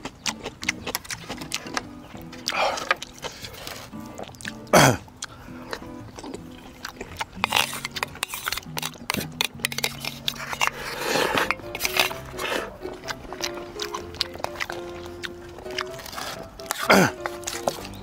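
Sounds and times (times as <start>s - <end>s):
background music: 0.0s - 18.0s
mouth clicks: 0.0s - 18.0s
person slurping noodles: 7.4s - 13.2s.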